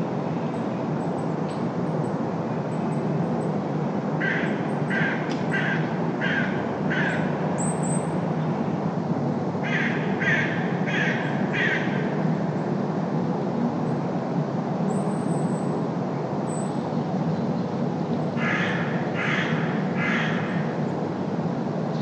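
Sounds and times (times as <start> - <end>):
city traffic drone: 0.0 - 22.0
crow cawing: 4.2 - 7.3, 9.6 - 12.0, 18.4 - 20.6.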